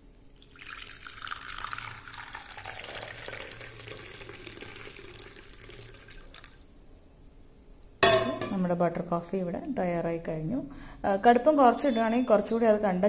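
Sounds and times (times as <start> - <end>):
coffee pouring into a cup: 0.3 - 6.6
liquid splashing and bubbling: 0.3 - 6.6.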